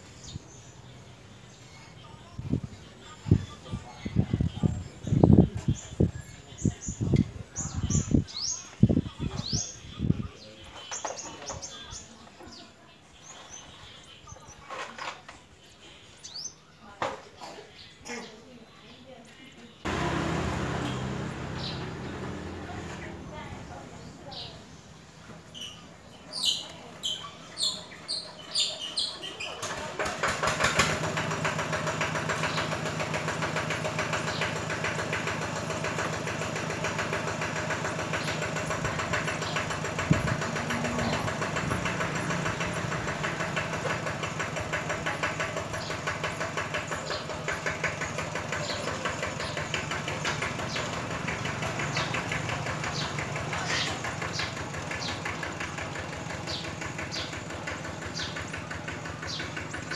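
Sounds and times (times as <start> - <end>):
engine idling: 19.8 - 24.6, 29.6 - 59.9
high bird chirps: 20.8 - 24.7.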